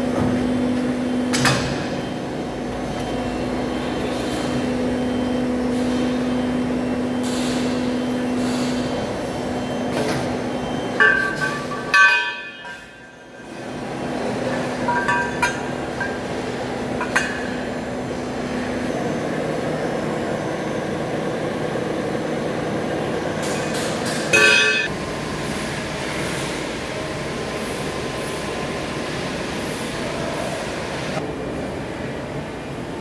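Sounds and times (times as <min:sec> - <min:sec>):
workshop machinery noise: 0:00.0 - 0:33.0
loud metal clang: 0:11.0 - 0:12.9, 0:24.3 - 0:24.9
steel pipes clinking: 0:11.0 - 0:13.2, 0:14.8 - 0:16.3.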